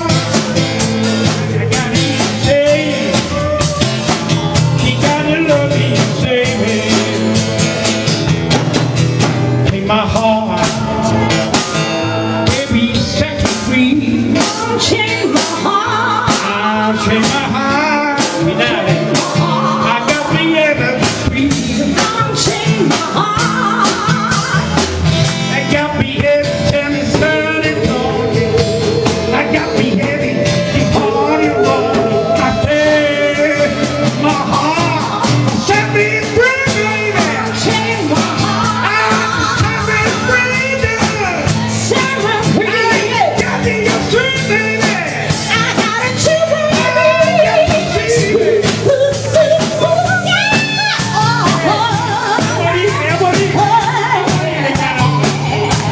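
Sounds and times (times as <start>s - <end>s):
live band with drums and cymbals: 0.0s - 55.9s
man shouting vocals into microphone: 16.4s - 22.6s, 25.6s - 49.0s, 51.7s - 55.4s.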